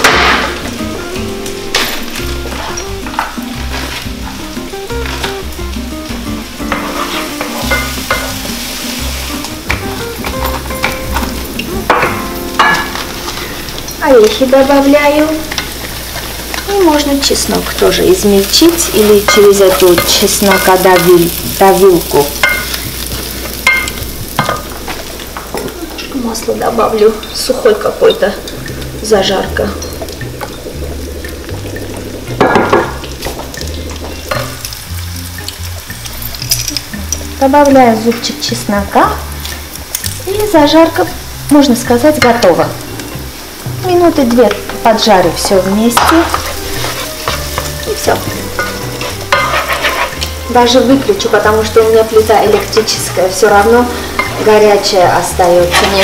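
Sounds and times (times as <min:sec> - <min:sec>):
background music: 0:00.0 - 0:56.0
onions sizzling in a frying pan: 0:00.0 - 0:56.0
wooden spatula scraping a pan: 0:03.6 - 0:04.2, 0:06.7 - 0:09.3, 0:45.4 - 0:56.0.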